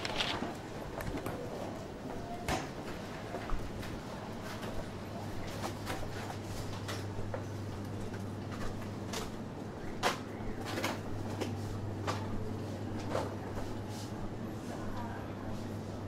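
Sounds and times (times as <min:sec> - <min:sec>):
footsteps on shop floor: 0:00.0 - 0:09.4.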